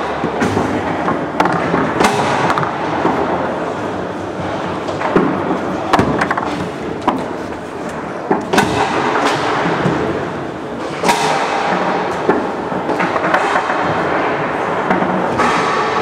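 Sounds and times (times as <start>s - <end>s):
steady background noise: 0.0s - 16.0s
foosball ball clacks: 4.8s - 10.2s, 10.9s - 16.0s.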